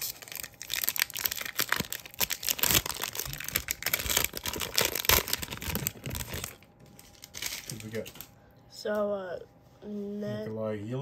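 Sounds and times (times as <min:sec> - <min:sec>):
wrapper crinkling and tearing: 0:00.0 - 0:08.3.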